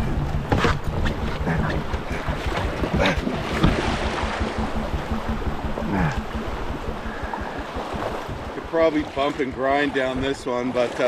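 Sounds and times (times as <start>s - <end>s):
canoe scraping over stones: 0.4s - 4.1s
water rippling over rocks: 0.8s - 11.0s.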